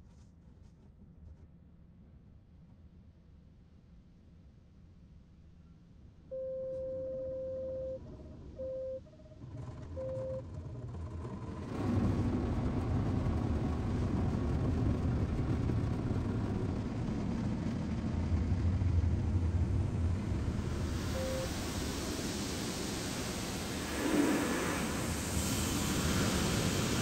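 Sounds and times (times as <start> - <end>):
parking sensor beeps: 6.3 - 8.0, 8.6 - 9.0, 10.0 - 10.4, 21.1 - 21.6
car wash machinery and water: 9.3 - 27.0.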